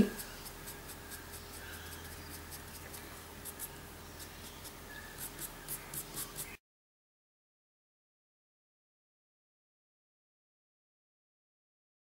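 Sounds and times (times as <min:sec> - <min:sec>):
felt nib rubbing on cardstock: 0:00.0 - 0:06.6
scratchy strokes on paper: 0:00.0 - 0:06.6.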